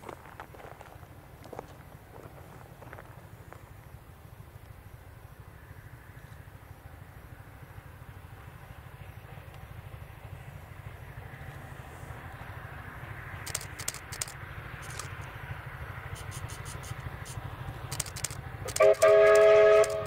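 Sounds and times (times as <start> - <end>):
steam locomotive rumble: 0.0 - 20.0
sharp locomotive beats: 7.5 - 20.0.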